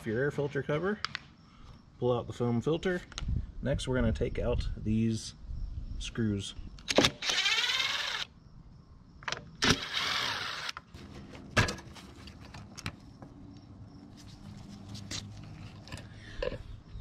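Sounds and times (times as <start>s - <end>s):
impact driver whirring: 6.9s - 8.3s, 9.6s - 10.8s.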